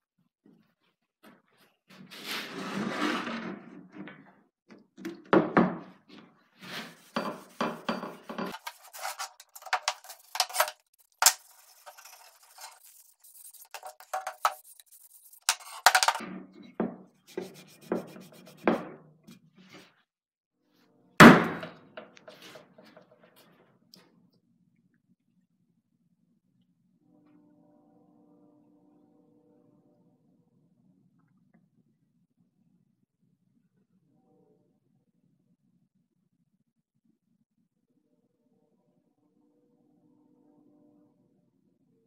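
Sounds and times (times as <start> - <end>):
rubbing and handling noises: 6.5 - 16.2, 17.2 - 19.9
cloth rag wiping wood: 11.5 - 15.7, 17.3 - 18.8.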